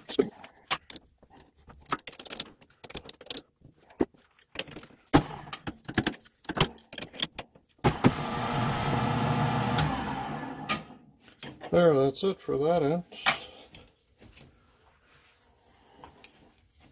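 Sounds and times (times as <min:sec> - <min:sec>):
lathe motor running: 0:07.9 - 0:10.9.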